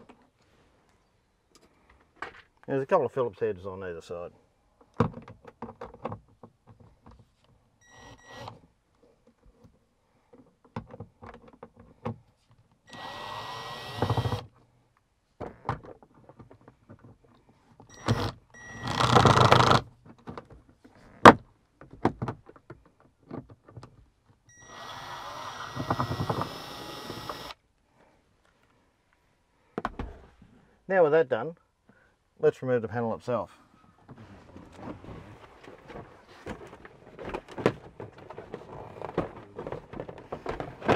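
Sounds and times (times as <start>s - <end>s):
cordless drill running: 12.9s - 14.5s, 18.0s - 19.8s, 24.6s - 27.6s
clicks and knocks of plastic trim: 35.6s - 40.9s.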